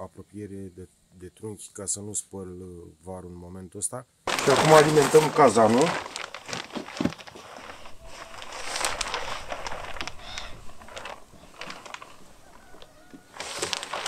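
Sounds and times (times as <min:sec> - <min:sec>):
faint bird calls: 0:10.0 - 0:13.6.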